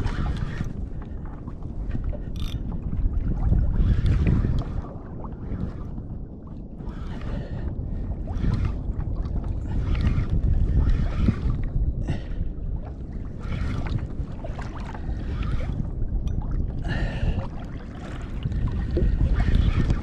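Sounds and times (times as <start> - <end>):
water around kayak: 0.0 - 20.0
wind rumble on microphone: 0.0 - 20.0
fishing reel winding: 2.3 - 2.6.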